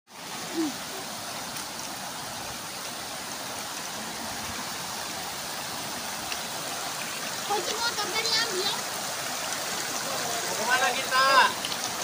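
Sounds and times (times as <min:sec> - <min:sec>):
river rushing over rocks: 0:00.1 - 0:12.0.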